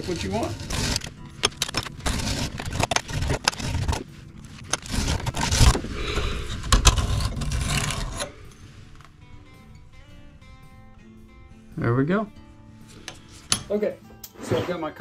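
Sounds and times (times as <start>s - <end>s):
steel scraping on sanding belt: 0.0s - 8.4s.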